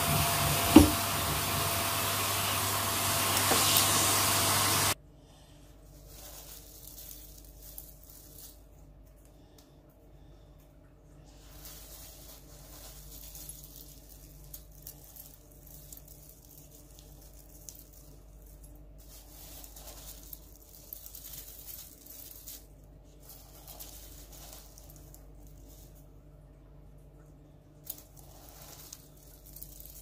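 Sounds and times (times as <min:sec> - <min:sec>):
faint low hum: 0:05.0 - 0:30.0
hand rummaging through granules and plastic: 0:05.8 - 0:08.8, 0:11.3 - 0:26.1, 0:27.8 - 0:30.0.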